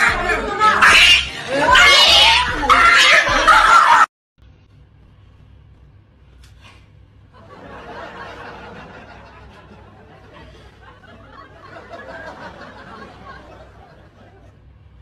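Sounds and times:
low steady hum: 4.4s - 15.0s.

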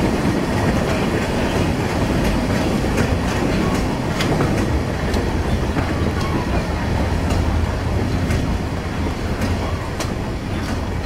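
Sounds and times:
train wheels rumbling on rails: 0.0s - 11.0s
sharp rail clicks: 0.2s - 11.0s.

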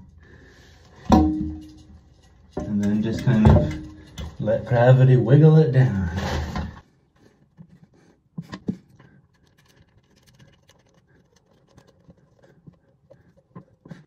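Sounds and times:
toilet scraping and knocking: 1.0s - 5.2s.

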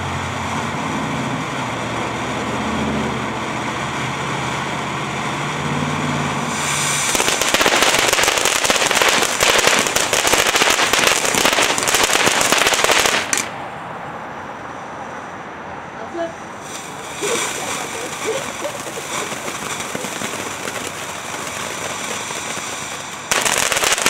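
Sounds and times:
firework crackling: 0.0s - 13.6s, 16.6s - 24.0s
firework fountain hissing: 0.0s - 13.6s, 16.6s - 24.0s.

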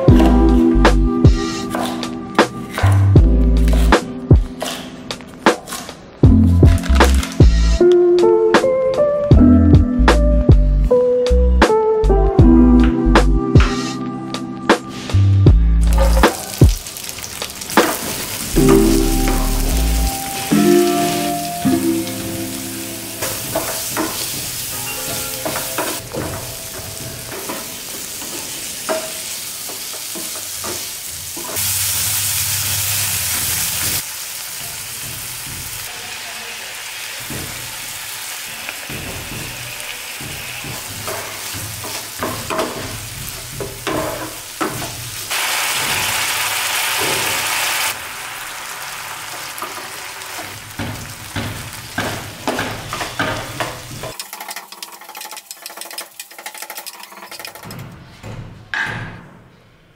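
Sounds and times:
vegetables sizzling in oil: 15.8s - 56.4s.

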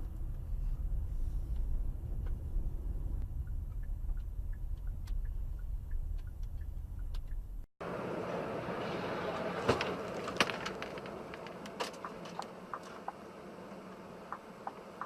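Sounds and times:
road and cabin noise: 0.0s - 15.0s
sharp clicks and ticks: 3.2s - 7.6s.

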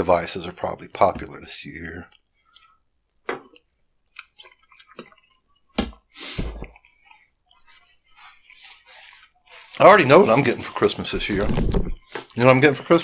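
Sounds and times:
chewing and wet mouth sounds: 2.1s - 5.7s.

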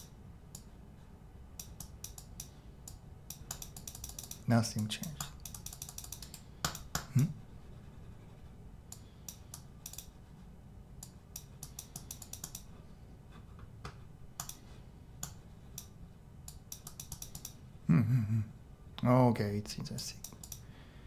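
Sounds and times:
computer mouse clicking: 0.0s - 0.7s, 1.6s - 7.1s, 8.9s - 10.2s, 11.0s - 12.7s, 13.8s - 14.6s, 15.2s - 17.6s, 20.1s - 20.6s
scroll wheel ticking: 1.6s - 6.9s, 11.0s - 12.7s, 15.2s - 17.6s.

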